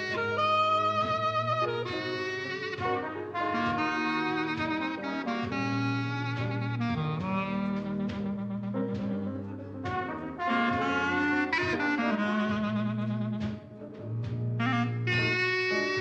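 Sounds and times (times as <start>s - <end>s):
instrumental music: 0.0s - 16.0s.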